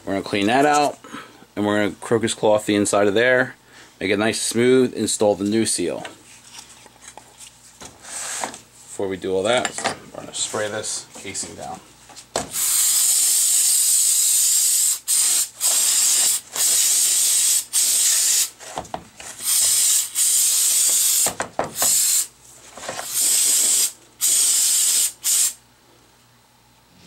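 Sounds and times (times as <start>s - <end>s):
aerosol can spraying: 12.5s - 18.6s, 19.4s - 22.3s, 23.0s - 25.6s.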